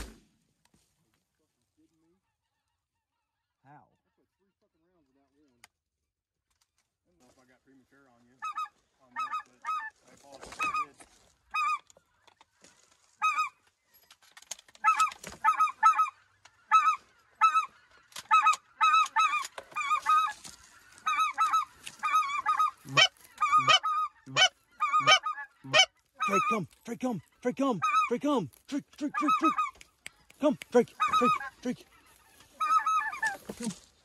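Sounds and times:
deep goose honks: 14.8 - 20.4, 21.0 - 29.8, 30.4 - 32.0
high two-note goose calls: 21.1 - 31.8.

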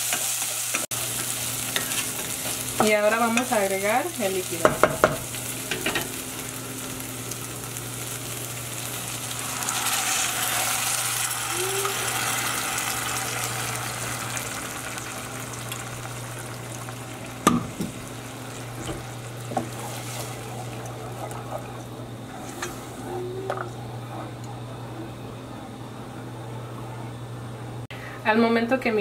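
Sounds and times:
rice sizzling in a hot pot: 0.0 - 23.0
steady low hum: 0.9 - 28.6.

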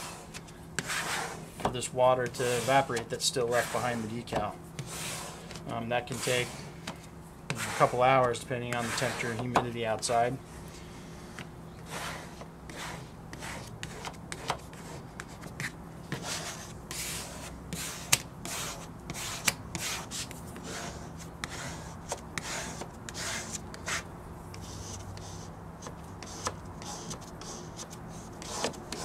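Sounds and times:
squeegee scraping on glass: 0.0 - 1.6, 2.2 - 6.8, 7.5 - 9.6, 11.8 - 24.0.

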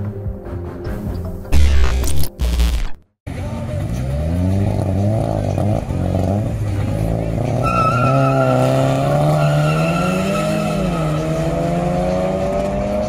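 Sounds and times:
cars accelerating hard: 3.3 - 13.0.

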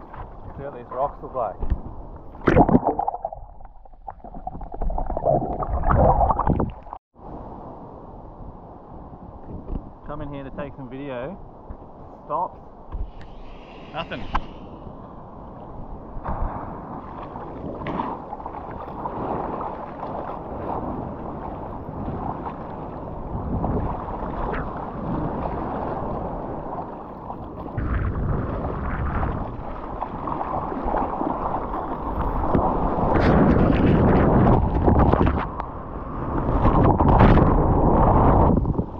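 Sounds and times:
wave breaking: 2.2 - 7.0
wind buffeting microphone: 11.1 - 38.9
ocean water rushing and splashing: 12.3 - 38.9.

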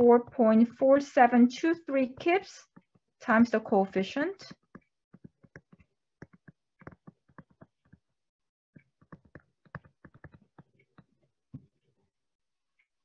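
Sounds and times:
stylus tapping on tablet screen: 2.0 - 3.0, 4.5 - 8.1, 8.8 - 11.8.

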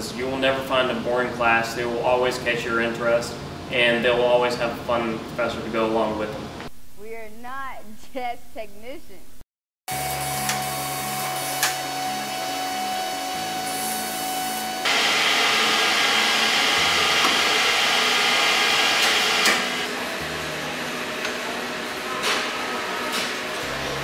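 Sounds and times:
metal lathe cutting: 10.0 - 22.1
machinery humming: 10.0 - 24.0.

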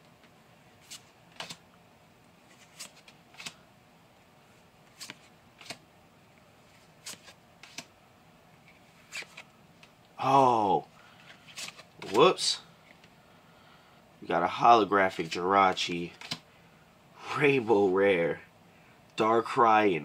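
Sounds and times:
cards swishing and tapping: 0.8 - 1.6, 2.5 - 3.6, 4.9 - 5.8, 6.6 - 7.9, 8.6 - 10.0, 11.2 - 13.1, 16.1 - 16.5.

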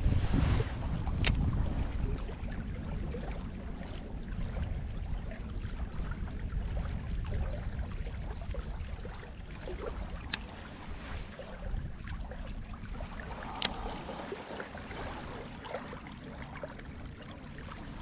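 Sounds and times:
wind on the microphone: 0.0 - 16.0
small waves lapping on rocks: 6.6 - 18.0.

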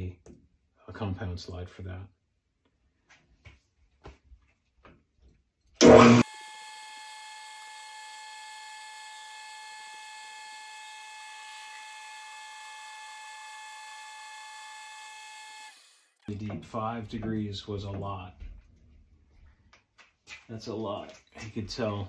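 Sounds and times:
lathe starting clunk: 5.8 - 6.2.

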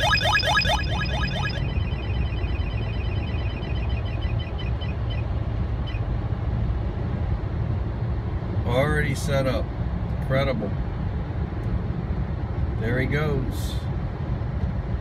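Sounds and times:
rapid faint beeps: 0.0 - 5.3
rising electronic chirps: 0.0 - 5.3
car rumble on the road: 0.0 - 15.0.

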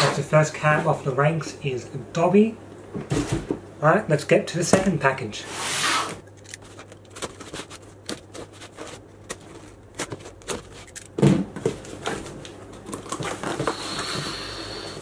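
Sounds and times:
cardboard flaps rustling: 6.6 - 13.9.

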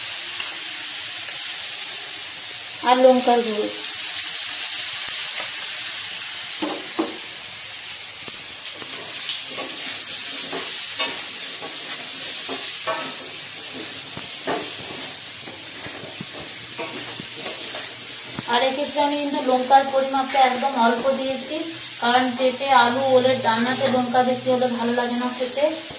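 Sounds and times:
vegetables sizzling in oil: 0.0 - 25.9
wooden spatula scraping pan: 8.8 - 18.5.

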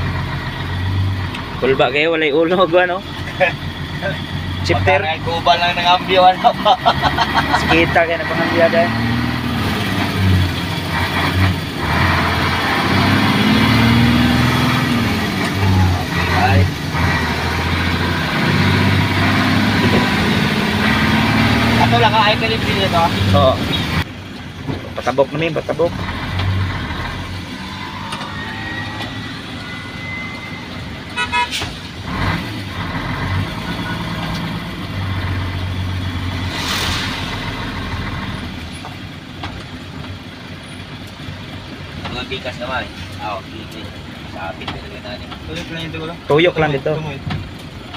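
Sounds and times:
diesel truck engine running: 0.0 - 47.9
rushing noise: 25.9 - 34.1, 36.0 - 38.6
short horn toot: 27.6 - 31.8.

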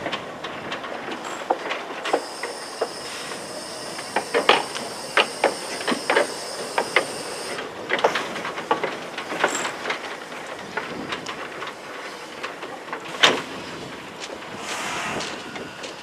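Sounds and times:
locomotive metallic clicks and clanks: 0.0 - 16.0
steam hissing: 1.2 - 10.4, 13.1 - 16.0.

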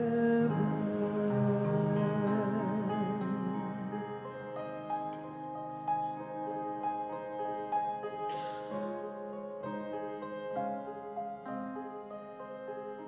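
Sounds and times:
person singing: 0.0 - 4.5
grand piano playing: 0.0 - 13.0
brief hiss: 8.3 - 9.0.

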